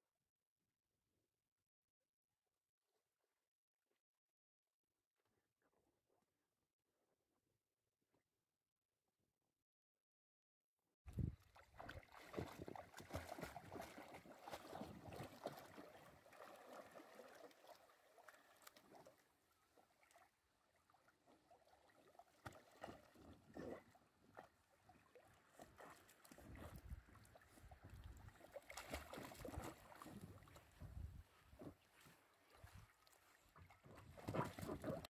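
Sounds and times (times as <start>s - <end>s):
water sloshing and splashing: 11.1s - 35.0s.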